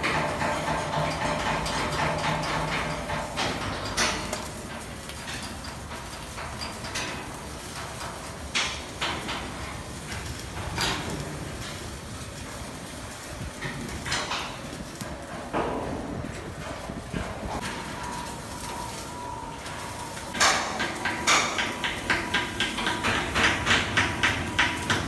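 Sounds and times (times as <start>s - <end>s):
sharp metal knocks: 0.0s - 4.6s, 20.3s - 25.0s
steady noisy din: 0.0s - 25.0s.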